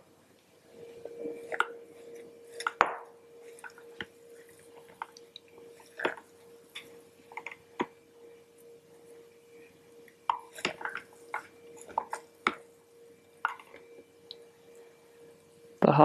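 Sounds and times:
faint steady hum: 0:00.0 - 0:16.0
soft wet squishes: 0:03.4 - 0:08.0, 0:09.0 - 0:12.7.

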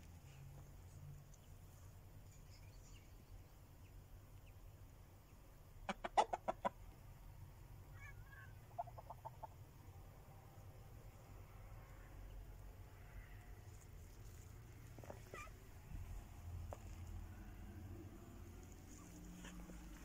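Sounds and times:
chicken clucking: 0:05.8 - 0:07.0, 0:08.0 - 0:09.6, 0:14.8 - 0:15.7.

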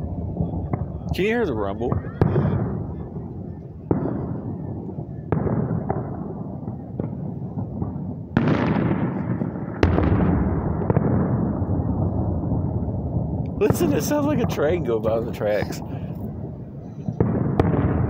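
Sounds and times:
low rumble: 0:00.0 - 0:05.1
fireworks booming: 0:00.0 - 0:18.0.

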